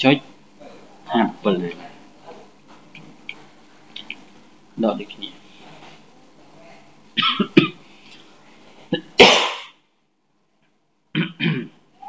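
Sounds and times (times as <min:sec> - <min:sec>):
person sneezing: 0:08.9 - 0:09.7.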